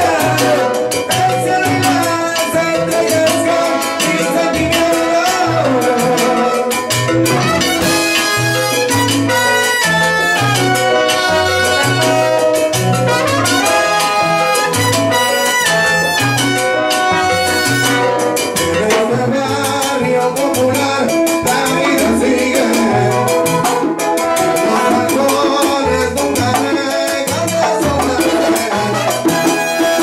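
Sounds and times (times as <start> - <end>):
man singing into microphone: 0.0 - 8.0, 18.6 - 30.0
salsa band playing: 0.0 - 30.0
trumpet and trombone riff: 0.0 - 30.0.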